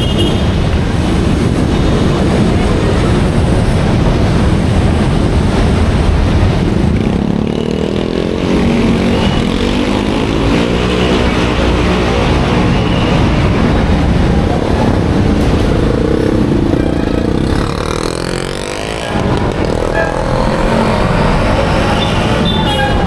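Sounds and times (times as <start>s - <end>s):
busy street traffic: 0.0s - 23.0s
motorcycle engines running: 0.4s - 23.0s
engine speeding up: 14.5s - 22.7s.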